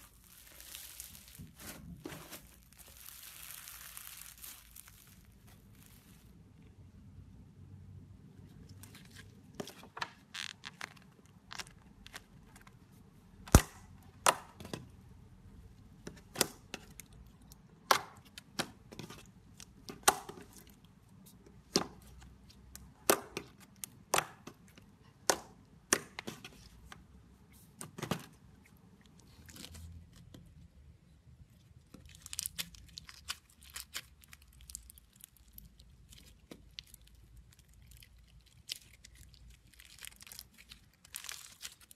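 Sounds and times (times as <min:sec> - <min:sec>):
slime crackling: 0:00.0 - 0:06.4, 0:31.7 - 0:41.9.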